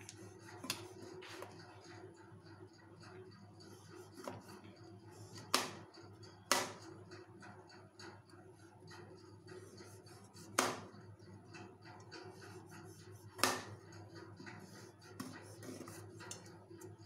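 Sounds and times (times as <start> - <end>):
knife chopping chocolate: 5.4 - 5.8, 6.5 - 6.9, 10.3 - 11.0, 12.2 - 13.8.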